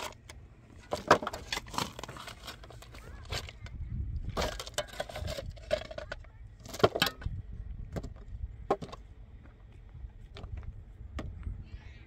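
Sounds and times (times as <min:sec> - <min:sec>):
pick striking rock and stones: 0:04.3 - 0:09.0.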